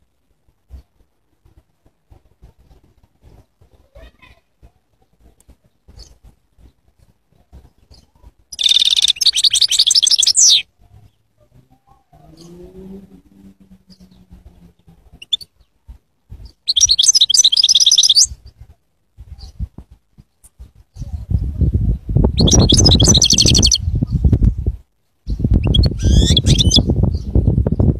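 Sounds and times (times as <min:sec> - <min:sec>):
goldfinch twittering song: 0:07.9 - 0:10.7, 0:16.4 - 0:18.4, 0:22.4 - 0:23.8, 0:25.3 - 0:27.3.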